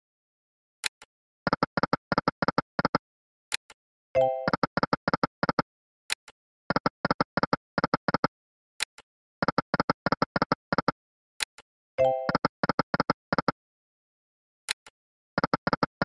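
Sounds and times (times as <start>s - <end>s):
short electronic ticks: 0.9s - 3.0s, 4.4s - 5.6s, 6.2s - 8.3s, 9.4s - 11.0s, 12.3s - 13.6s, 15.4s - 16.0s
sharp electronic click: 4.5s - 5.6s.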